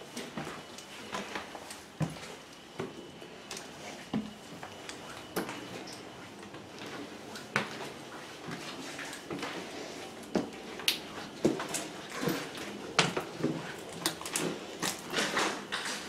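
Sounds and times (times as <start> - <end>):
slow footsteps and scuffs: 0.0 - 12.8.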